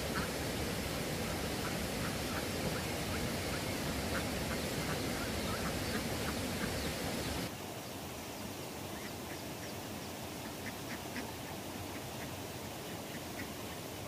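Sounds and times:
steady rushing noise: 0.0 - 7.5.

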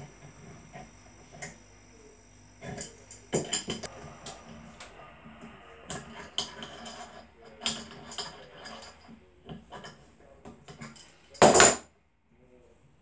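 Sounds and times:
metal tools clicking and clinking: 2.6 - 3.9, 5.9 - 11.8.

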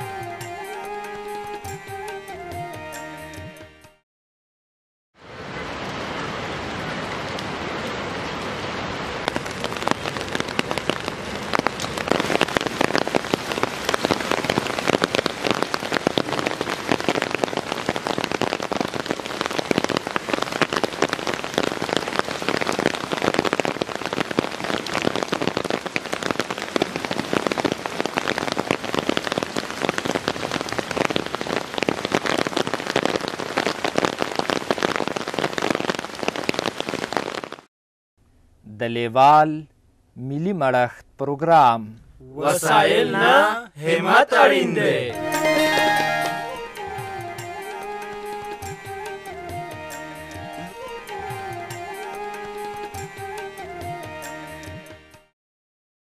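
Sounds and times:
steady rain falling: 5.2 - 37.7, 42.4 - 53.5.

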